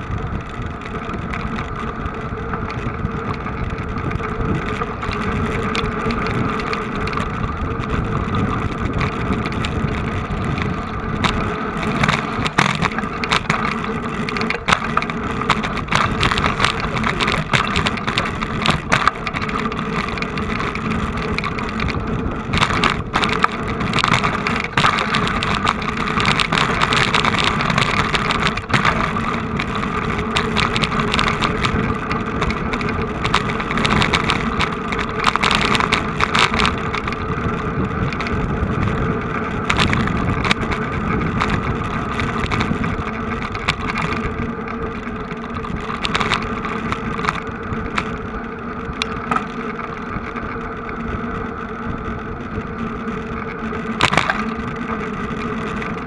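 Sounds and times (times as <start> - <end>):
noisy wash: 0.0 - 56.0
vehicle engines running: 0.0 - 56.0.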